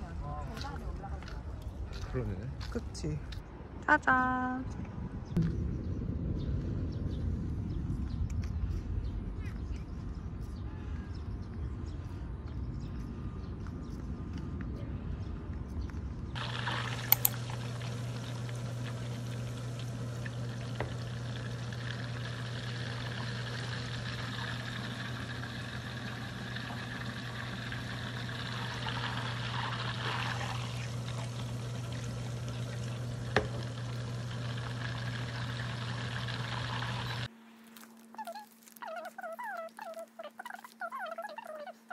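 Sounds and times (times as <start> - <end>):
low hum: 3.4 - 38.7
butter sizzling in a saucepan: 16.4 - 37.3.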